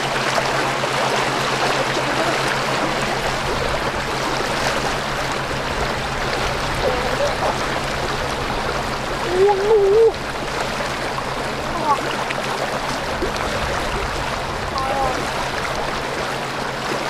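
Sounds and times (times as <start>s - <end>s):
river water splashing: 0.0s - 17.0s.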